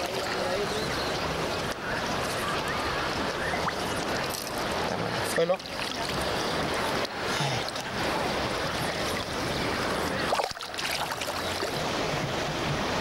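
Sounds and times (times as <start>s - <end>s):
surf hiss: 0.0s - 13.0s
shallow water splashing: 3.2s - 11.8s.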